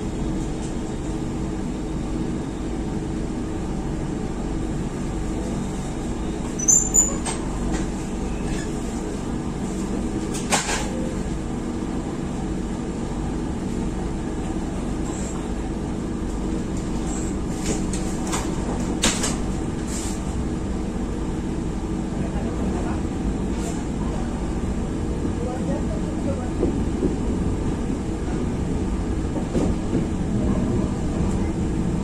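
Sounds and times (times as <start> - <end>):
train coach rumble and hum: 0.0 - 32.0.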